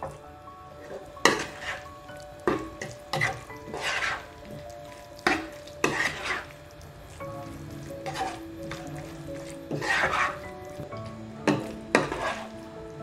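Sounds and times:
light sizzle: 0:00.0 - 0:13.0
spatula scraping a pan: 0:00.8 - 0:10.9, 0:11.5 - 0:12.6.

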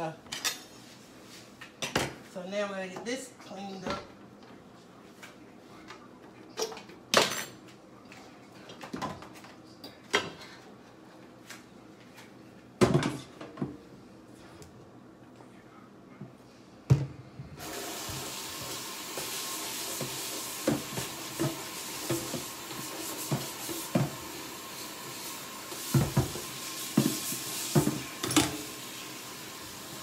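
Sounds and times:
kitchen tap running: 0:17.6 - 0:30.0.

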